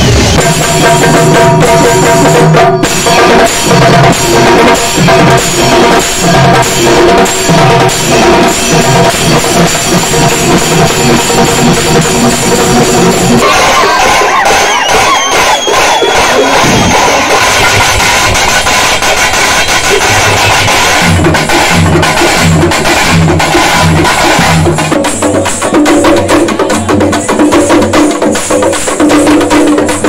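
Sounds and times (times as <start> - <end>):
barrel drums beaten with sticks: 0.0 - 30.0
crowd shouting: 13.4 - 18.2.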